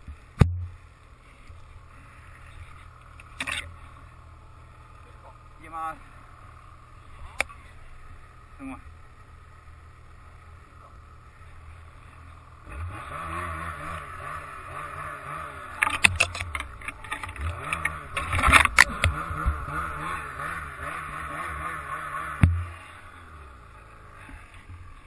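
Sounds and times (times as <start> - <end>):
snowmobile engine revving: 0.0 - 25.0
sharp knocks and snaps: 15.8 - 19.2.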